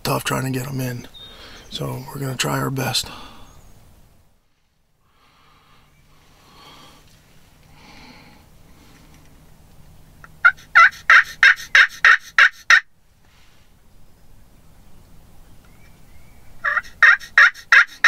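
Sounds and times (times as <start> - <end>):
turkey call yelps: 10.4 - 12.9, 16.6 - 18.0.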